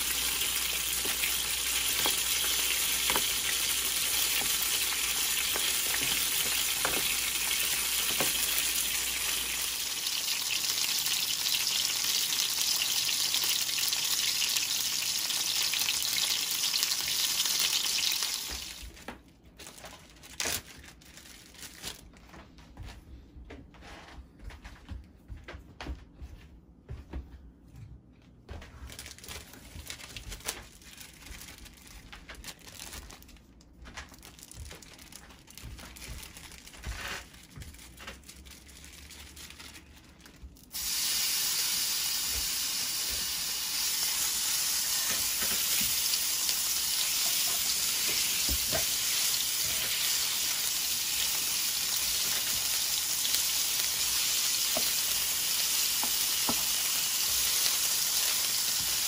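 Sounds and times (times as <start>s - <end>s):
beef sizzling in hot oil: 0.0s - 18.8s, 40.7s - 59.0s.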